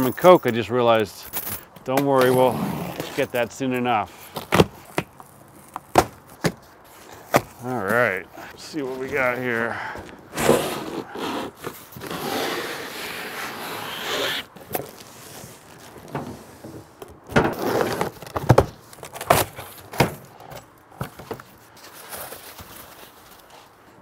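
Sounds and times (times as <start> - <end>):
cardboard box scraping: 10.3 - 16.9, 17.5 - 19.8.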